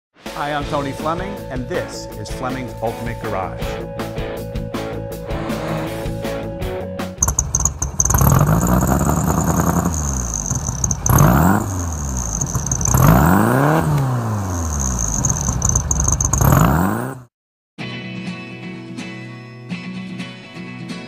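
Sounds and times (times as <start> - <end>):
car engine revving: 5.1 - 6.5, 7.2 - 17.3
high whine: 7.2 - 17.1.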